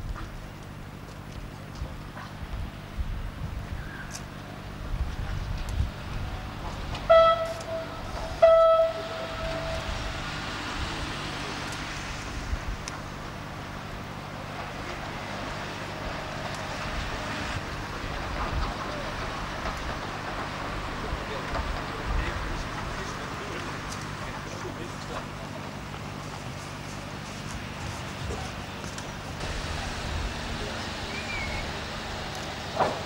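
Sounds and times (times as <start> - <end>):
train running noise: 0.0 - 33.0
train horn blasts: 7.0 - 10.4.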